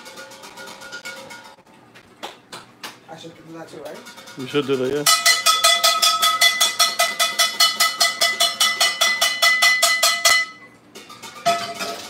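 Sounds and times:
pan clanking on stove: 0:03.8 - 0:12.0
frying pan banged rapidly: 0:04.0 - 0:10.6, 0:11.2 - 0:12.0.

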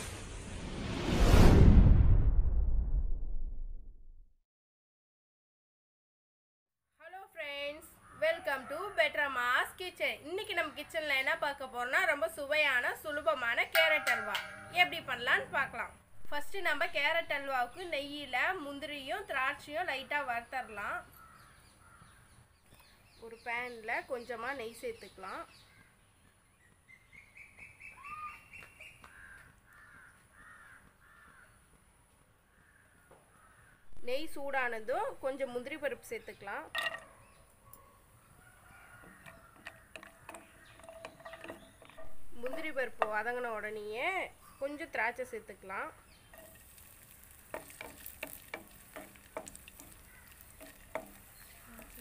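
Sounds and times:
crow cawing faintly: 0:07.9 - 0:09.1, 0:21.1 - 0:22.4, 0:28.0 - 0:31.8, 0:32.4 - 0:34.0, 0:38.2 - 0:42.1, 0:49.4 - 0:52.0
raisins frying in hot oil: 0:45.9 - 0:52.0.

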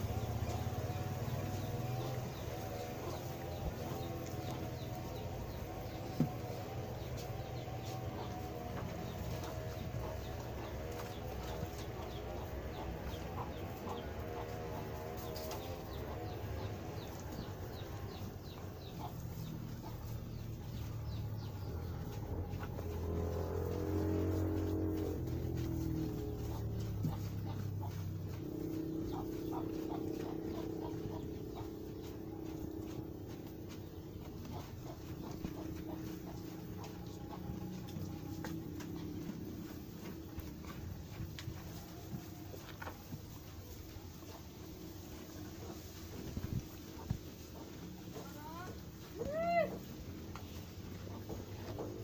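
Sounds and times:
steady low hum: 0:00.0 - 0:49.1
hens clucking: 0:00.0 - 0:52.0
small birds chirping: 0:00.0 - 0:52.0
cattle crunching hay: 0:16.7 - 0:49.2.

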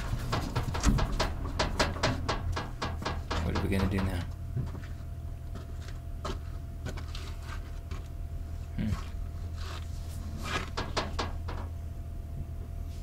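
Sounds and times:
steady low hum: 0:00.0 - 0:13.0.

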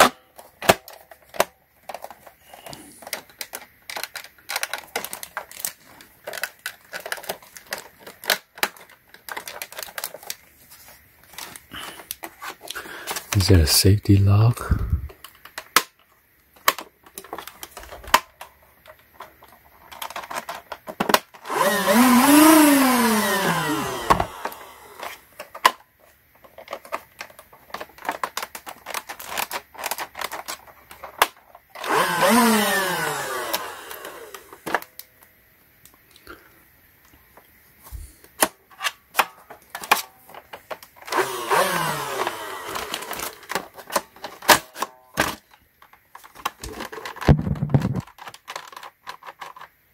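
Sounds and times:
toy blaster motor whirring: 0:21.3 - 0:25.3, 0:28.8 - 0:34.8, 0:41.0 - 0:44.8.

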